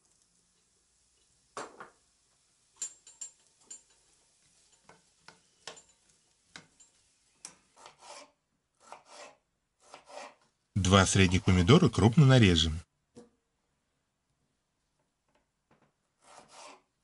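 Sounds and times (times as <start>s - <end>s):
spatula scraping frying pan: 3.0s - 10.5s, 16.2s - 17.0s.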